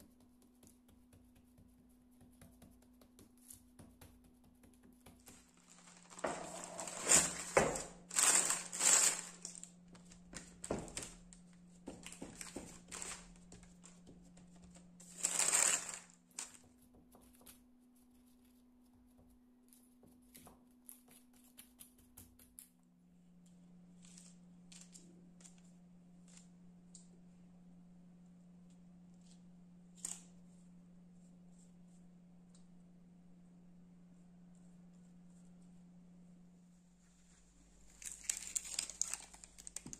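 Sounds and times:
low steady hum: 0.0s - 39.9s
parchment paper crinkling: 0.1s - 18.8s, 37.3s - 39.9s.

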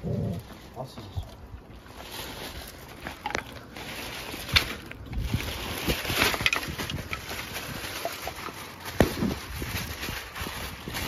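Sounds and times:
plastic bag rustling: 0.0s - 11.0s.

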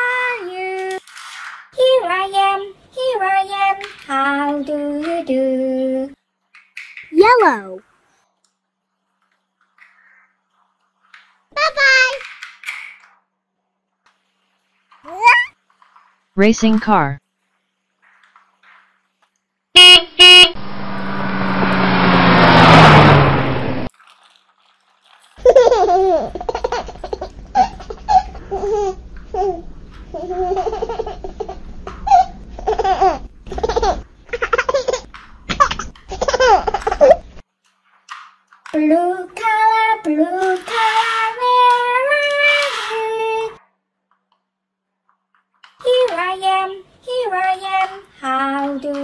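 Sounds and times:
recorded baby laughter and babble: 15.0s - 15.6s, 25.4s - 37.3s
toy horn beeps: 19.8s - 20.6s
electronic rushing sound: 20.6s - 23.9s.

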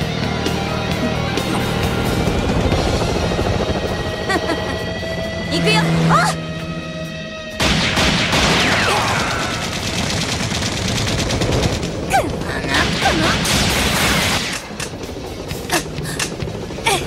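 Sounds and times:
rapid automatic gunfire: 7.6s - 14.8s.

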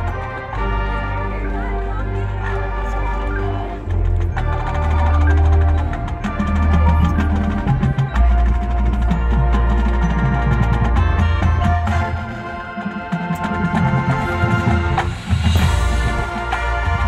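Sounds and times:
marching band wind chords: 0.0s - 17.0s
percussion strikes and drums: 3.7s - 17.0s.

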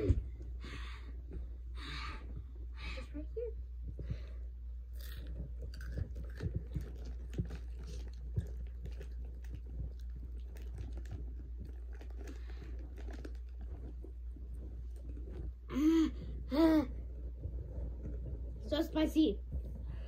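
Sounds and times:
steady low hum: 0.0s - 20.0s
chips crunching: 4.9s - 14.1s
foil snack bag rustling: 7.2s - 14.0s.

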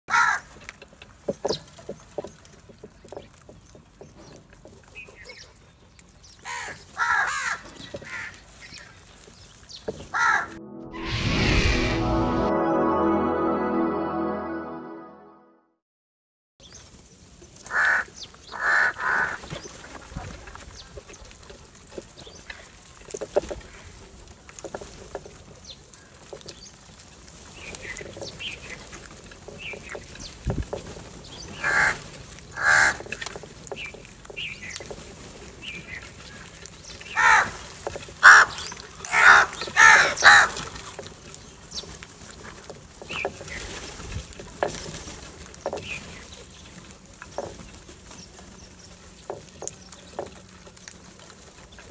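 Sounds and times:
crows cawing harshly: 0.1s - 0.5s, 6.5s - 8.3s, 17.7s - 19.4s, 31.6s - 32.0s, 32.6s - 33.0s, 37.1s - 37.6s, 38.2s - 40.6s.

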